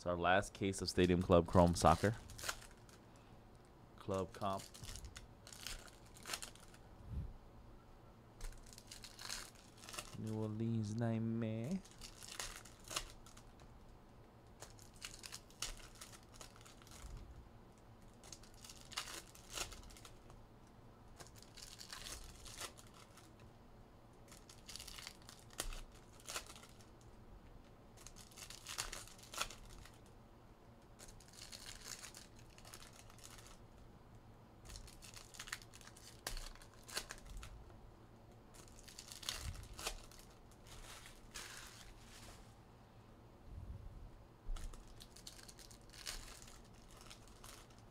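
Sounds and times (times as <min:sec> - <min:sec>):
card pack wrappers tearing and crinkling: 0:00.6 - 0:03.0, 0:04.1 - 0:06.8, 0:08.4 - 0:10.9, 0:11.6 - 0:13.7, 0:14.5 - 0:17.2, 0:18.0 - 0:20.4, 0:21.1 - 0:23.5, 0:24.2 - 0:27.1, 0:27.9 - 0:30.1, 0:30.9 - 0:33.8, 0:34.6 - 0:37.6, 0:38.5 - 0:42.2, 0:44.6 - 0:47.9.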